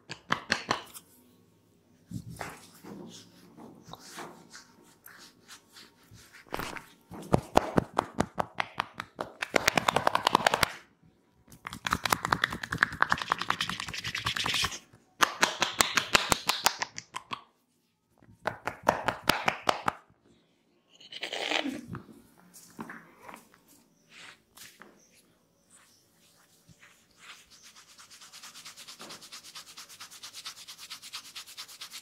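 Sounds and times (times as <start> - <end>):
hands slapping on a back: 0.1 - 1.0, 6.5 - 10.8, 11.6 - 14.6, 15.2 - 17.5, 18.4 - 20.0.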